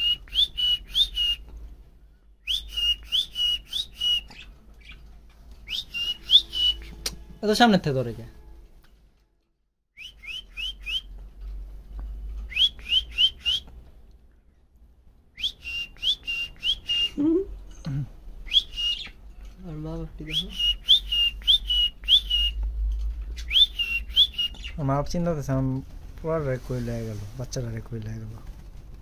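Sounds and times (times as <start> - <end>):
budgie chirping: 5.7 - 7.1, 18.5 - 19.2, 23.3 - 24.8.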